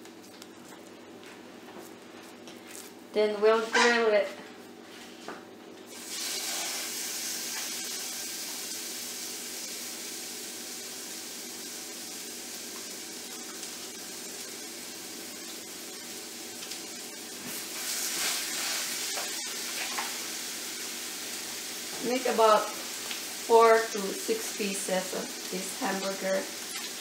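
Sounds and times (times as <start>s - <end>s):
patties sizzling in a pan: 5.9s - 27.0s.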